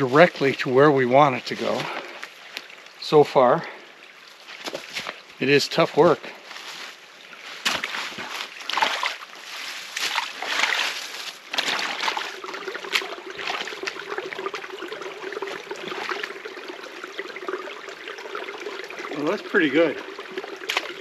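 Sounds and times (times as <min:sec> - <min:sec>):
water trickling through mud channel: 0:00.0 - 0:21.0
boots squelching in wet mud: 0:04.3 - 0:05.2, 0:05.8 - 0:14.0.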